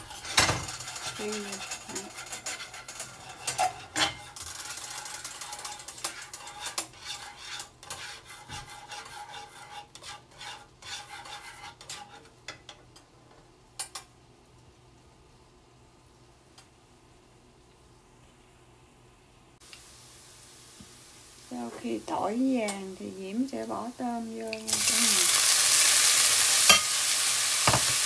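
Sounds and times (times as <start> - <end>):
garlic sizzling in oil: 0.0 - 12.3, 19.6 - 28.0
chopsticks stirring in pan: 0.0 - 12.8, 21.5 - 28.0
chopsticks tapping pan: 26.6 - 27.0.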